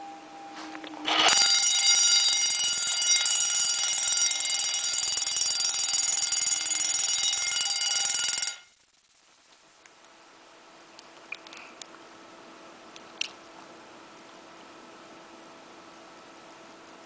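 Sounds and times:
fire alarm bell ringing: 1.1 - 8.8.

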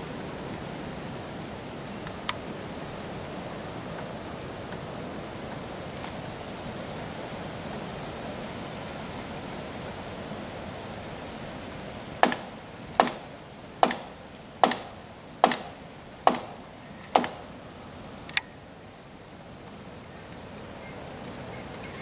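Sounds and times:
hammer blows on timber: 12.2 - 17.5.

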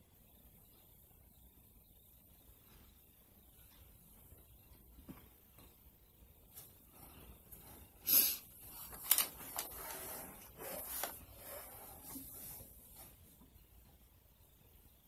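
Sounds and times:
makeup rubbing and scraping: 8.6 - 13.2.

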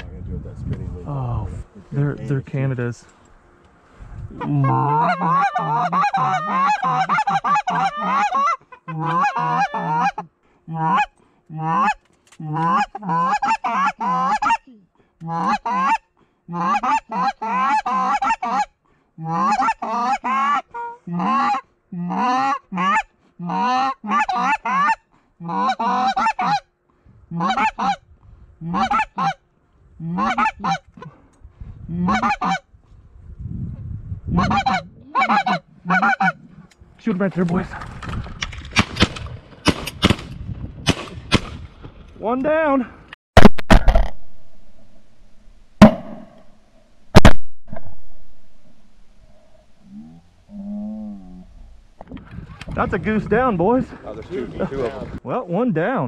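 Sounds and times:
goose honks and clucks: 4.4 - 26.7, 27.3 - 28.0, 28.6 - 29.4, 30.0 - 31.1, 31.9 - 32.6, 34.3 - 36.4.

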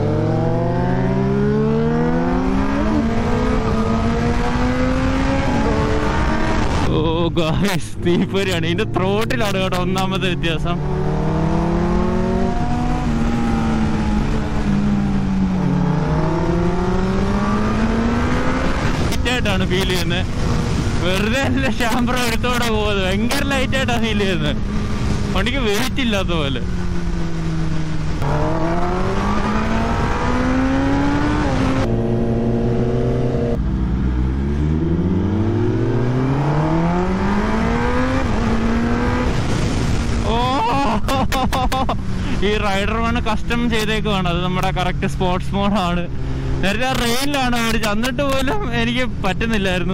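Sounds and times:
motorcycle engine accelerating: 0.0 - 49.9
wind rush: 11.2 - 25.5, 35.0 - 41.1
wind rush on microphone: 16.9 - 23.8, 37.0 - 43.3.

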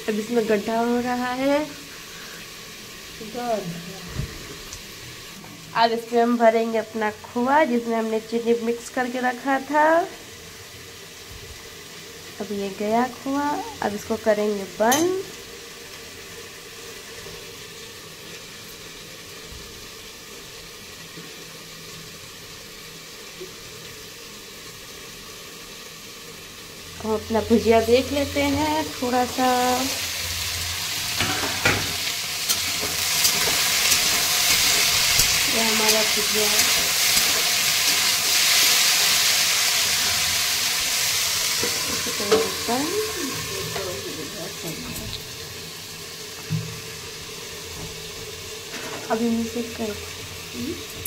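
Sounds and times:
potatoes sizzling in oil: 0.0 - 51.0
metal spatula stirring: 32.4 - 39.1.

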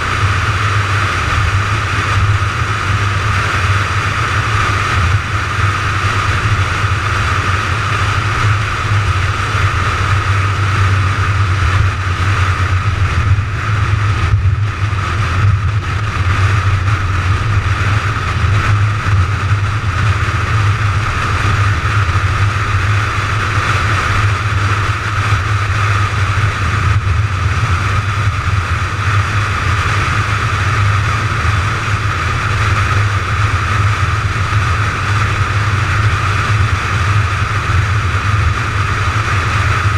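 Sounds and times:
car cruising at highway speed: 0.0 - 39.9.

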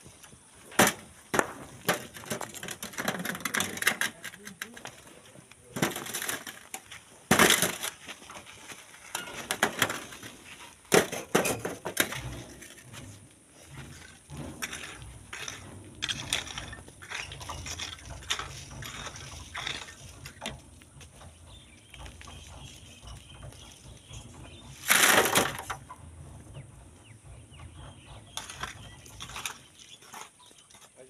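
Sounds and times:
sand and stones scraping: 1.6 - 25.8.

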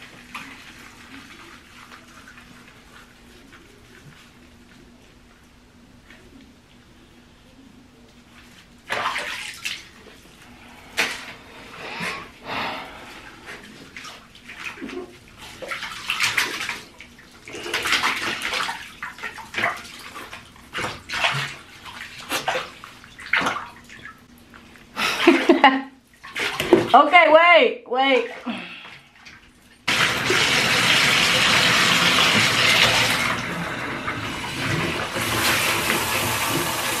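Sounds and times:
water splashing in bathtub: 0.0 - 4.8, 8.3 - 37.0.

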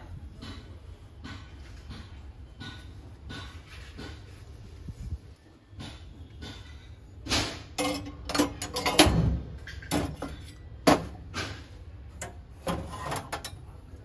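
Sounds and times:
brass utensils knocking and clinking: 7.7 - 11.2.

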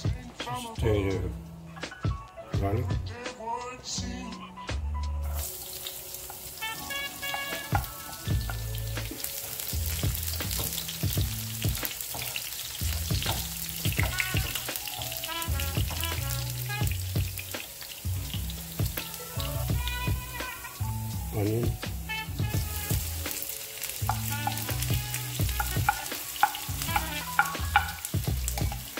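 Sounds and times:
background music: 0.0 - 28.9
garlic sizzling in oil: 5.3 - 28.9
wooden spatula stirring: 22.5 - 28.9.

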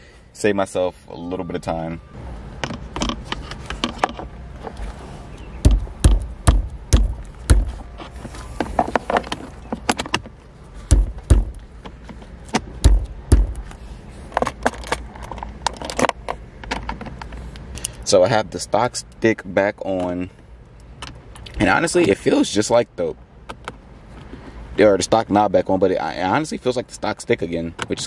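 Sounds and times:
heavy thumps: 5.6 - 13.8.

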